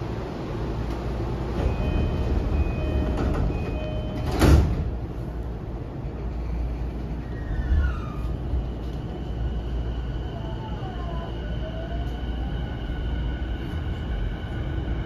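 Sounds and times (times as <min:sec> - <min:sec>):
stopped train humming: 0:00.0 - 0:15.0
sliding doors slamming shut: 0:01.4 - 0:05.1
train door chime: 0:01.6 - 0:04.9.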